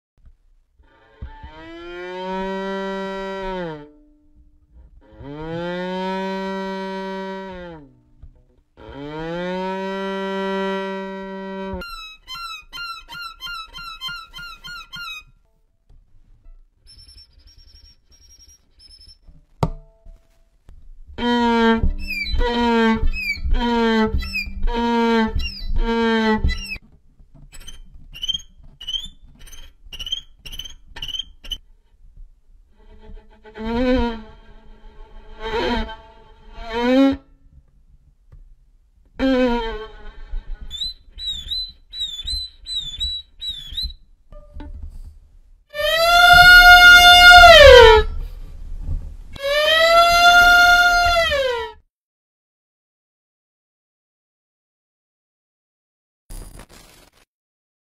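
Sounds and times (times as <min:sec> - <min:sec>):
violin imitating animal calls: 0:05.0 - 0:07.9, 0:08.8 - 0:15.3, 0:21.2 - 0:26.8, 0:32.8 - 0:37.3, 0:39.2 - 0:44.0, 0:45.8 - 0:48.2, 0:49.4 - 0:51.8.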